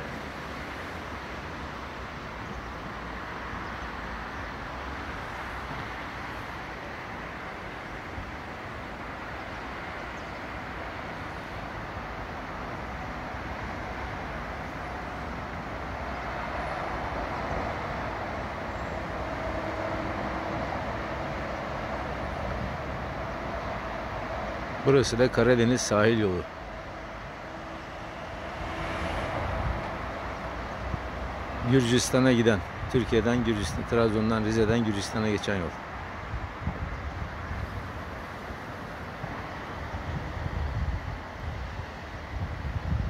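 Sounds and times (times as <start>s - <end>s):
faint engine hum: 0.0s - 33.3s
highway traffic noise: 0.0s - 43.0s.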